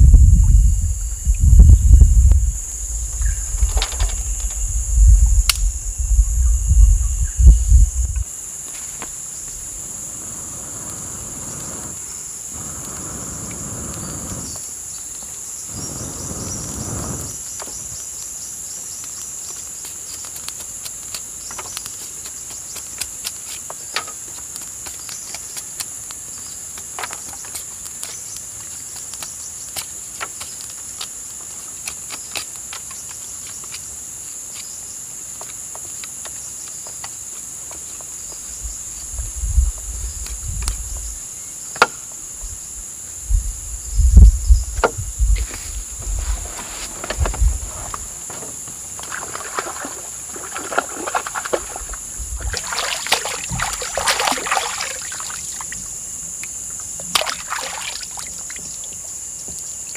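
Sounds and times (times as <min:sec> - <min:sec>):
insects droning: 0:00.0 - 0:59.9
low rustling: 0:43.4 - 0:55.8.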